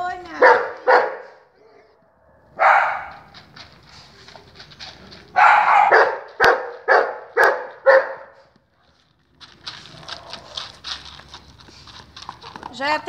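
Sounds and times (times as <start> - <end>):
dog barking: 0.4 - 1.5, 2.2 - 3.4, 5.3 - 8.5.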